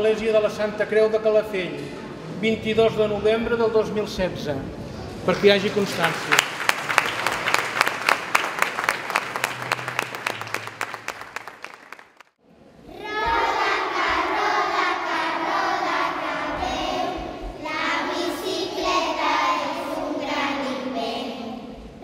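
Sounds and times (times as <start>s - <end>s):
crowd applauding: 5.3s - 12.4s
children's choir singing: 12.9s - 22.0s.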